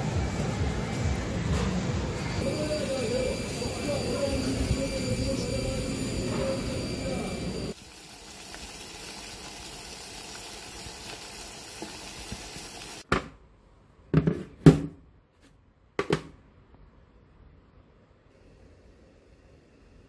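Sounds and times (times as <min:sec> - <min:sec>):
water boiling in a pot: 0:02.4 - 0:13.1.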